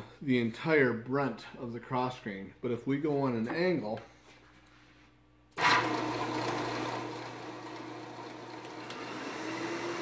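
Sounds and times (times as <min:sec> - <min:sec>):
drum sander motor humming: 0:05.6 - 0:10.0.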